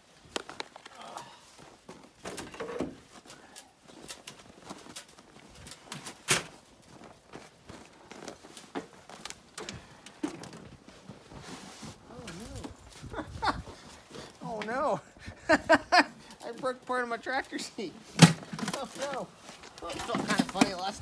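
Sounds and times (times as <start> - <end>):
footsteps on snow: 3.0 - 10.0, 10.6 - 14.9, 16.5 - 21.0.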